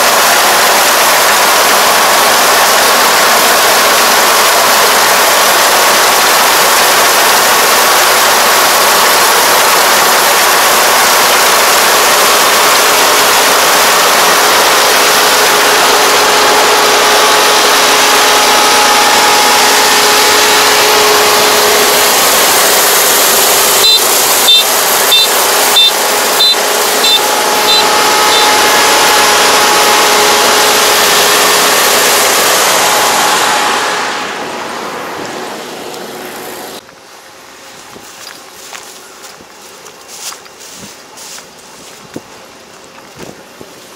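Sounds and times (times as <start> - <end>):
combine harvester engine drone: 0.0 - 43.9
high warning buzzer beeps: 23.6 - 28.6.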